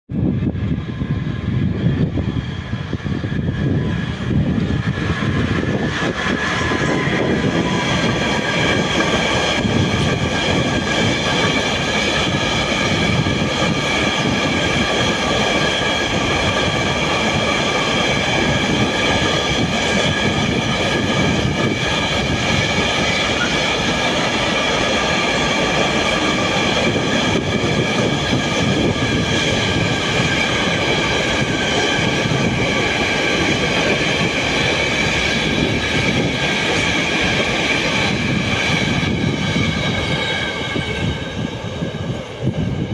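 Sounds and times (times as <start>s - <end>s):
train wheels rumbling on rails: 0.1s - 42.9s
high-pitched wheel squealing: 0.9s - 12.4s, 18.4s - 30.5s.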